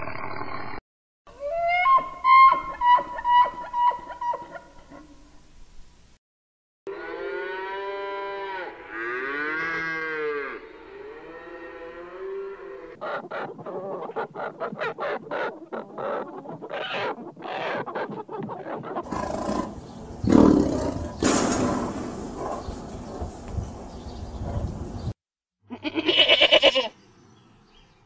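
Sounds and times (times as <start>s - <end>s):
cattle mooing: 6.9s - 13.0s
hens clucking: 12.9s - 20.0s
lion roar: 18.7s - 23.2s.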